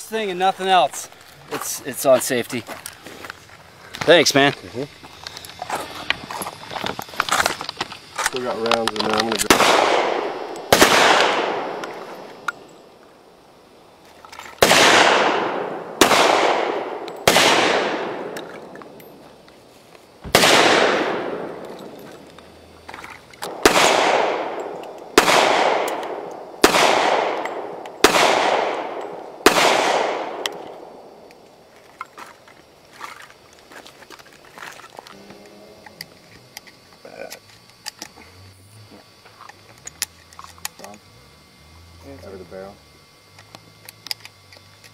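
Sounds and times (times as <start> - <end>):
pistol shots echoing: 9.4 - 12.6, 14.6 - 19.0, 20.3 - 22.0, 23.5 - 31.3.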